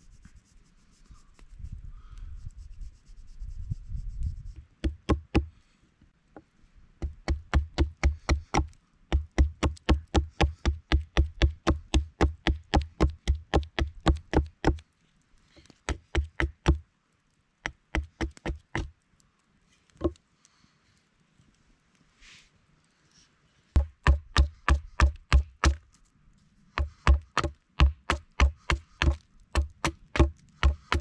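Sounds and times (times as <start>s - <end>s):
axe chopping wood: 4.8s - 5.5s, 7.0s - 14.8s, 15.9s - 16.8s, 17.7s - 18.9s, 23.8s - 25.8s, 26.8s - 31.0s.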